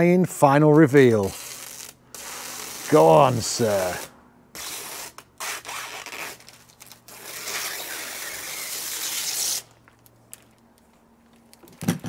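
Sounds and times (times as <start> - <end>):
plastic film peeling off glass: 1.4 - 11.6.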